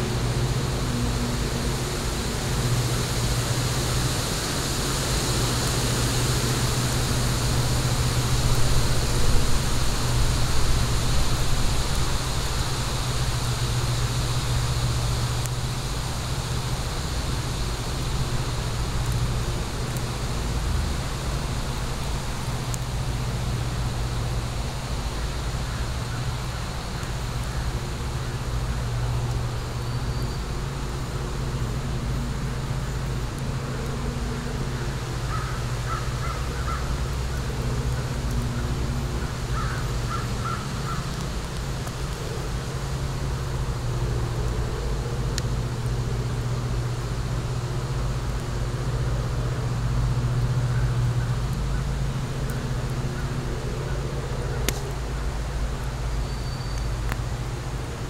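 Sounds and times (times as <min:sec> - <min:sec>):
low outdoor rumble: 0:00.0 - 0:58.0
fire popping: 0:36.4 - 0:47.1, 0:51.3 - 0:56.1, 0:56.8 - 0:58.0.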